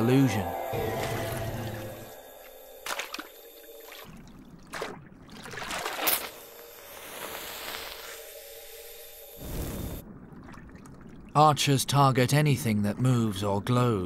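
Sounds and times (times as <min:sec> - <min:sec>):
water jet spurting and splashing: 0:02.8 - 0:08.2.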